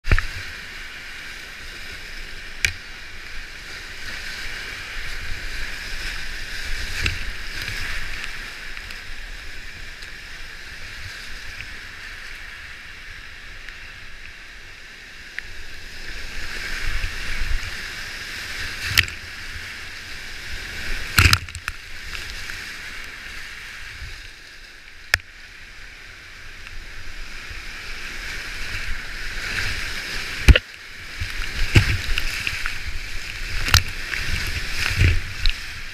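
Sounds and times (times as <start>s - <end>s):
paddle strokes splashing: 0.0s - 12.5s, 26.8s - 35.9s
roaring whitewater: 0.0s - 35.9s.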